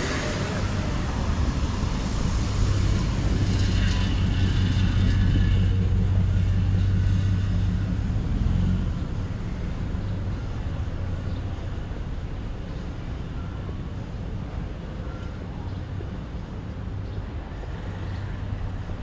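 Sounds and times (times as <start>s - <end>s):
street traffic: 0.0s - 19.0s
vehicle engine humming: 0.0s - 19.0s.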